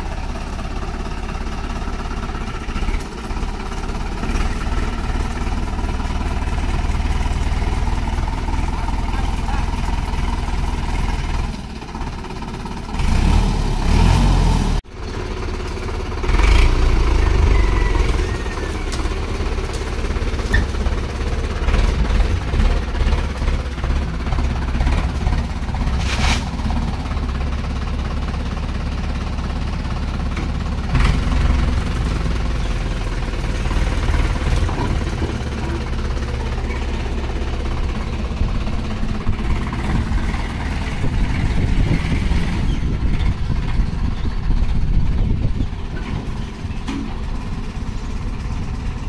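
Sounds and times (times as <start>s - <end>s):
tractor diesel engine running: 0.0s - 49.0s.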